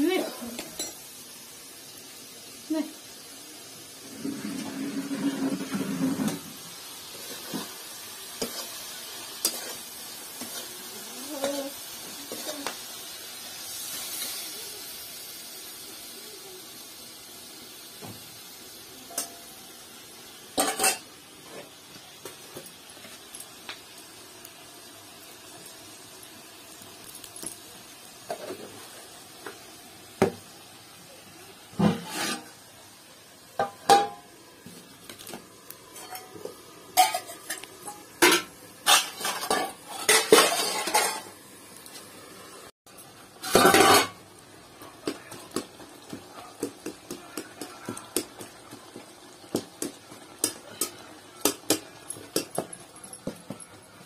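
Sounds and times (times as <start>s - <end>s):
spatula scraping in a pan: 4.1s - 12.8s, 20.6s - 21.8s, 31.8s - 32.7s, 35.9s - 41.4s, 43.3s - 44.2s
metal pots and lid clattering: 20.6s - 21.1s, 31.8s - 32.5s, 33.6s - 34.3s, 35.9s - 41.4s, 43.4s - 44.2s.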